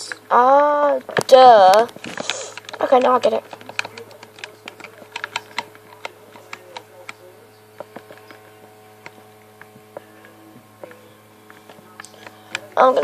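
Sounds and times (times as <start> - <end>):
faint steady hum: 0.0 - 13.0
game controller buttons clicking: 1.2 - 7.2.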